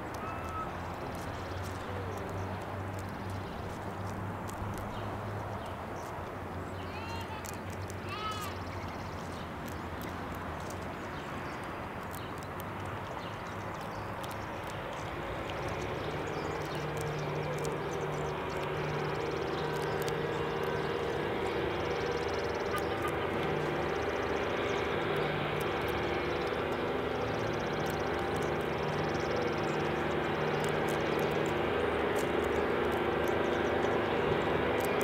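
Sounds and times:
distant vehicle engine hum: 0.0 - 35.0.

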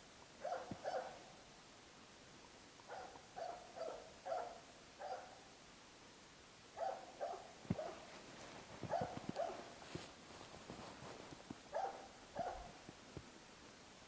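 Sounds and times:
dog barking: 0.4 - 1.2, 2.9 - 5.4, 6.8 - 8.1, 8.9 - 9.7, 11.7 - 12.8.

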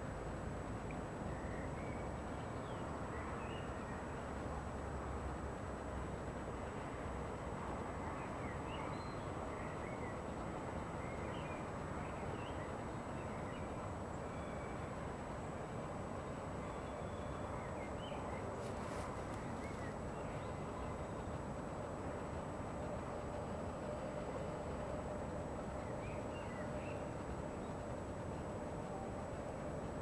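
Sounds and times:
distant town and railway rumble: 0.0 - 30.0
small birds chirping: 16.6 - 21.3.

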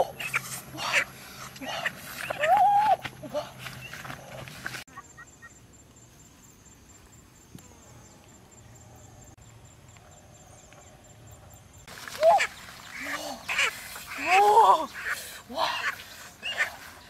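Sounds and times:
grass rustling: 0.0 - 7.8, 11.8 - 17.0
chicken squawking: 12.3 - 14.3, 15.8 - 16.9.

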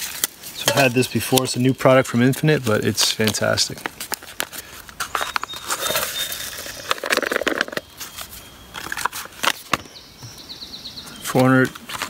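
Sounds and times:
paper pouch crinkling: 3.9 - 9.7.

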